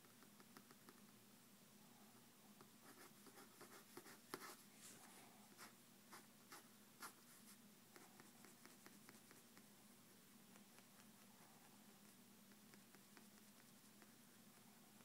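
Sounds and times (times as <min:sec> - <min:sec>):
pencil scratching on paper: 0:02.9 - 0:04.6, 0:05.5 - 0:09.5.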